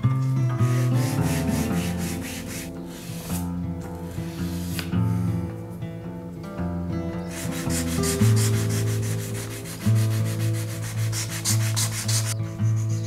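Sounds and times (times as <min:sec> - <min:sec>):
sandpaper rubbing on wood: 0:00.2 - 0:04.9, 0:07.3 - 0:13.0.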